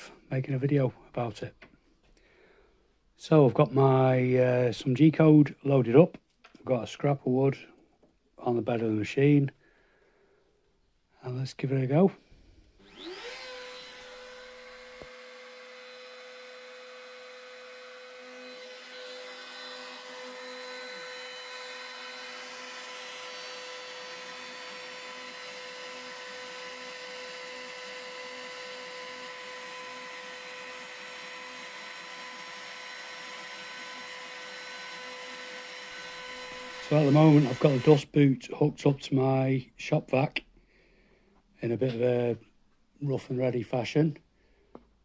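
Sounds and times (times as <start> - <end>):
router spindle whine: 12.8 - 38.1
shop vacuum running: 12.8 - 38.1
router bit cutting wood: 12.8 - 38.2.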